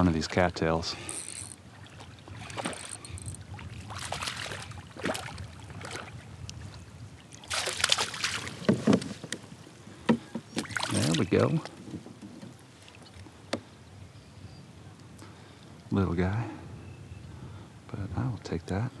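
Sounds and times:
water sloshing: 0.0s - 13.7s
wind rumbling on microphone: 0.0s - 19.0s
fish splashing at surface: 7.4s - 8.6s.

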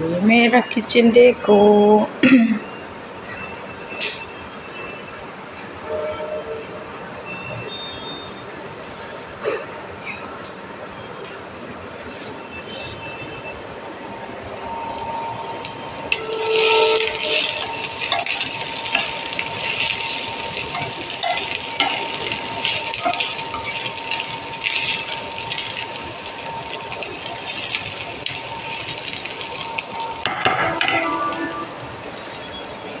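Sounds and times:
green beans sizzling in a frying pan: 14.9s - 33.0s
spatula scraping a pan: 16.1s - 24.0s.

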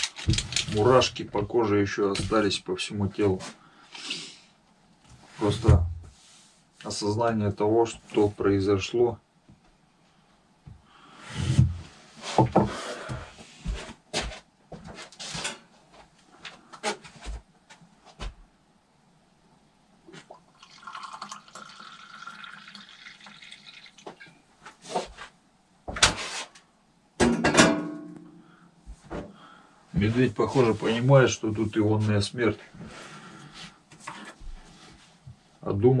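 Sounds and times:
water poured from kettle into mug: 20.3s - 24.2s.

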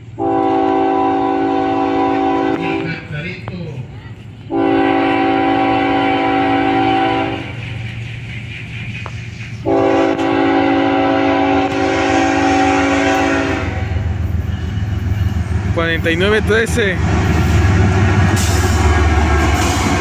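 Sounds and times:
locomotive air horn blasts: 0.2s - 3.1s, 4.5s - 7.6s, 9.6s - 15.1s.

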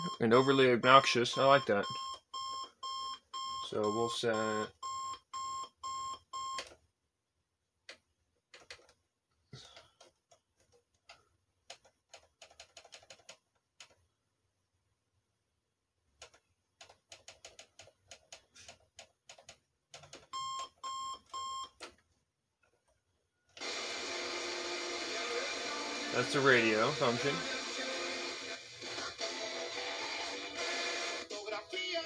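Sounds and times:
clock radio alarm beeping: 0.0s - 6.6s.

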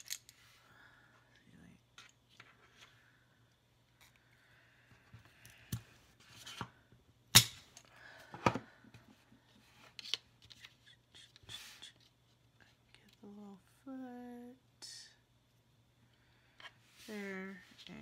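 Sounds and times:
sticks and paper rustling on table: 9.5s - 13.2s.

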